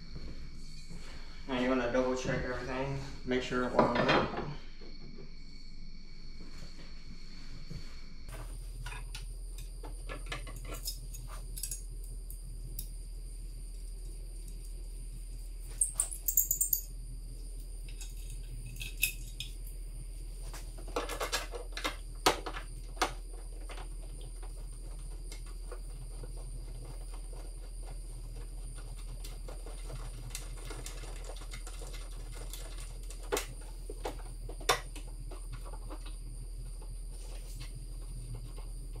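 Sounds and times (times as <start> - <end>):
steady low hum: 0.0 - 39.0
metallic clinks and taps: 15.7 - 16.9.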